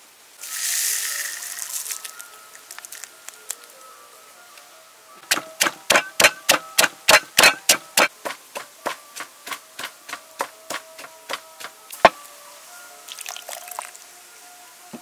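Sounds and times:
pestle pounding in a wooden mortar: 5.3s - 12.2s.

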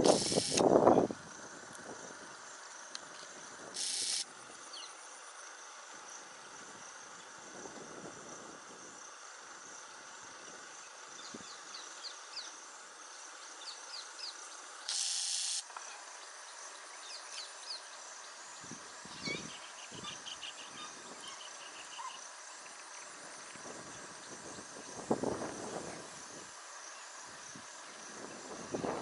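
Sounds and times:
brief loud hiss: 0.0s - 0.7s, 3.8s - 4.2s
insect chirring: 0.0s - 7.3s, 8.2s - 28.8s.

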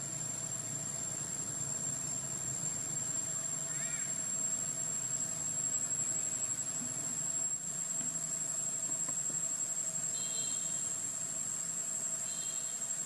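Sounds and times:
insects high-pitched trill: 0.0s - 13.0s.

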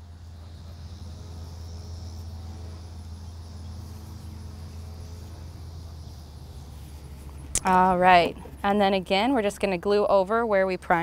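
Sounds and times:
insects chirring: 0.0s - 11.0s
steady low hum: 0.0s - 11.0s.

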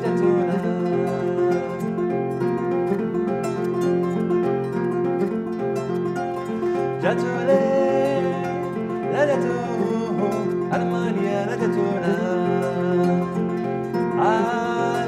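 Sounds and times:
man singing: 0.0s - 2.1s, 6.8s - 15.0s
kora plucked pattern: 0.0s - 15.0s.

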